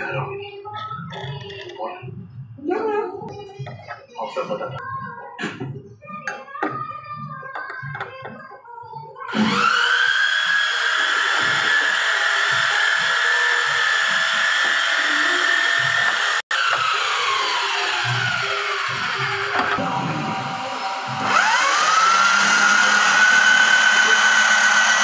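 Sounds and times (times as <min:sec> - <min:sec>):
electric drill motor whine: 0:09.3 - 0:25.0.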